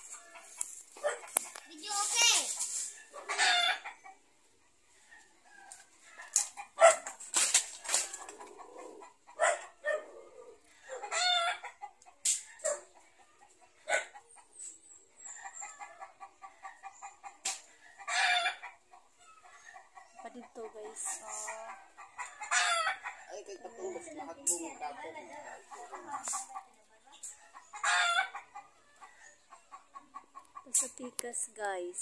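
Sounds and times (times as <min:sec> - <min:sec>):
branches rustling: 0:00.0 - 0:03.2, 0:05.7 - 0:08.6
chickens clucking: 0:00.0 - 0:32.0.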